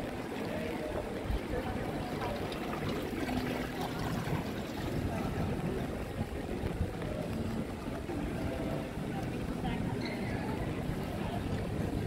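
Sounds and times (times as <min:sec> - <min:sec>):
voices of passers-by: 0:00.0 - 0:12.0.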